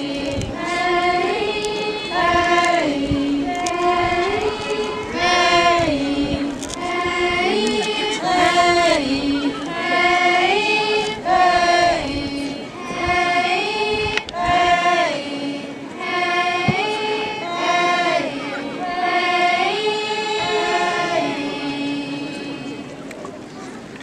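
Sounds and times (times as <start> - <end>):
girls singing together: 0.0 - 22.9.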